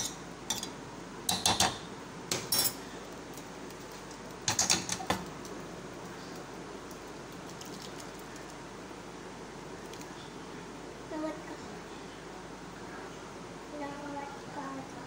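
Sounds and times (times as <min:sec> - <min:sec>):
pot and utensils clinking: 0:04.4 - 0:05.2.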